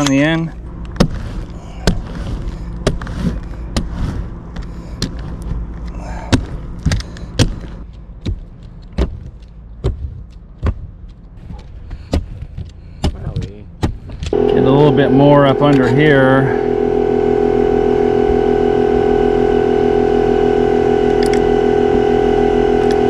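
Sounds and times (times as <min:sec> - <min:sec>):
roller rolling over rubber roof: 0:00.0 - 0:12.8
steady low hum: 0:00.0 - 0:23.0.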